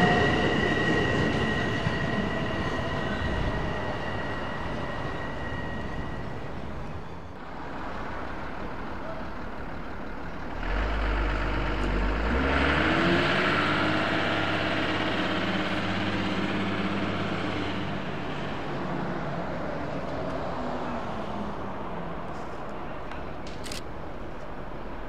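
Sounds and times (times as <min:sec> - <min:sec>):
humming drone climbing in pitch: 0:00.0 - 0:08.8, 0:10.2 - 0:20.2
deep rumble of train: 0:00.0 - 0:25.0
wheels rushing on rail: 0:00.0 - 0:25.0.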